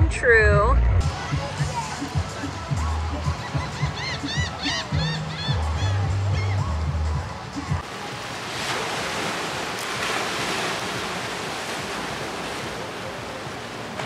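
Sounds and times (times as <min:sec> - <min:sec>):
background music: 0:00.0 - 0:08.0
waves washing over rocky shore: 0:07.8 - 0:14.0.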